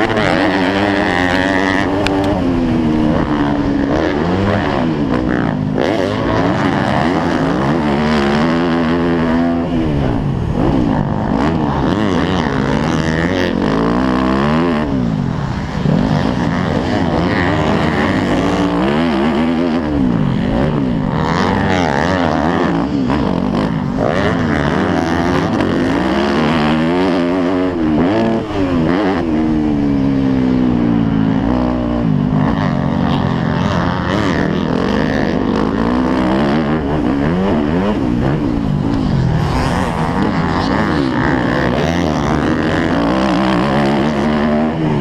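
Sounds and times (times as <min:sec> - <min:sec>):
dirt bike engine revving: 0:00.0 - 0:45.0.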